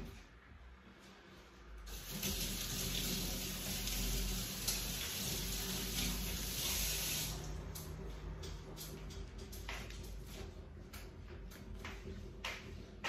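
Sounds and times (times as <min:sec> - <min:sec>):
tap water running into sink: 0:01.9 - 0:07.5.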